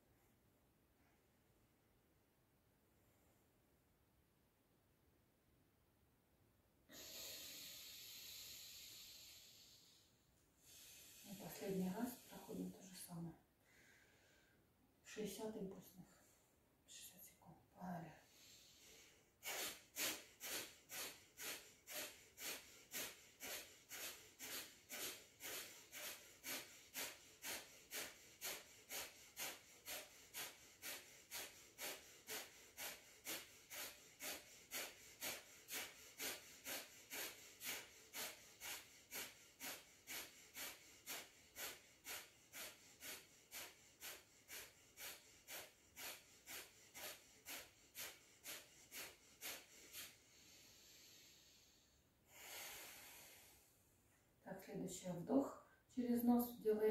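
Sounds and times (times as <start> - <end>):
forceful nasal exhalations: 6.9 - 12.5, 18.3 - 53.8.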